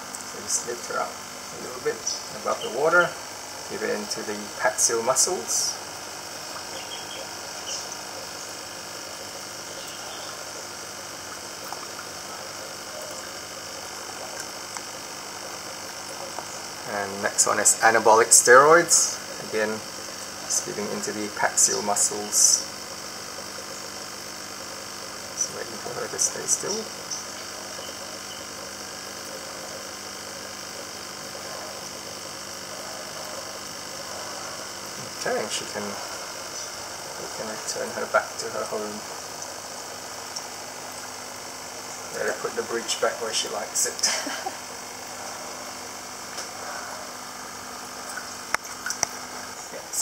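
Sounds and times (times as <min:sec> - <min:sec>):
aquarium filter humming: 0:00.0 - 0:50.0
water churning: 0:00.0 - 0:50.0
faint small ticks: 0:48.0 - 0:49.2.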